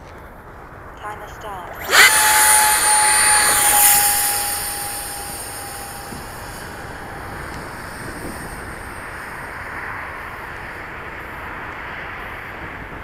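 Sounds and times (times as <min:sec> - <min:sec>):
electric ducted fan whining: 0:01.8 - 0:09.6
wind on microphone: 0:01.8 - 0:09.6.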